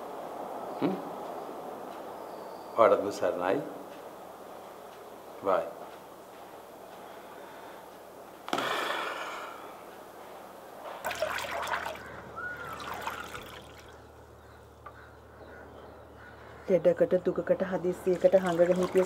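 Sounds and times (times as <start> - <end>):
water splashing and trickling: 10.8 - 14.3, 17.8 - 19.0.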